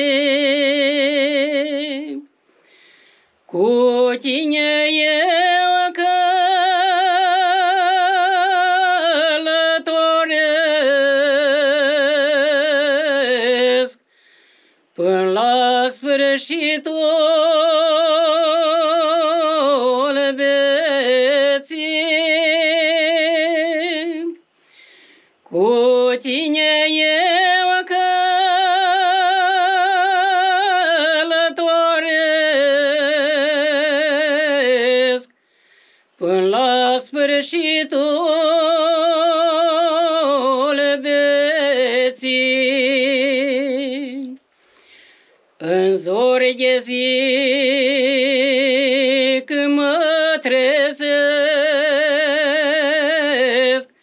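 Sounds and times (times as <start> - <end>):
woman singing unaccompanied: 0.0 - 2.4, 3.4 - 14.1, 14.9 - 24.5, 25.4 - 35.4, 36.1 - 44.5, 45.6 - 54.0.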